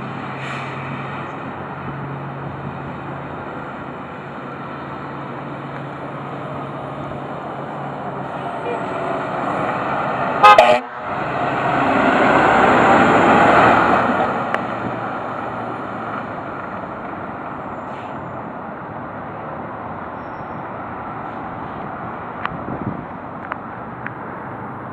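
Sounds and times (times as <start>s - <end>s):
truck engine pulling away: 0.0s - 18.8s
fire engine air horn blast: 10.4s - 11.2s.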